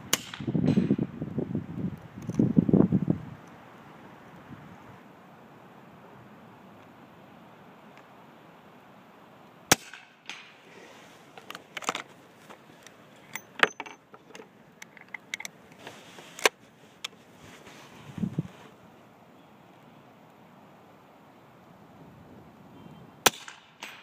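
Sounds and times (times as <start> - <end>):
suppressed rifle shots: 9.7 - 10.6, 23.2 - 24.0
small clicks and knocks: 11.3 - 17.2.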